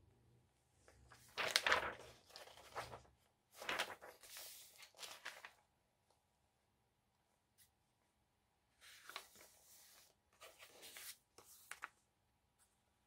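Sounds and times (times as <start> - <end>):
paper pages rustling: 1.1 - 5.6, 8.8 - 12.0.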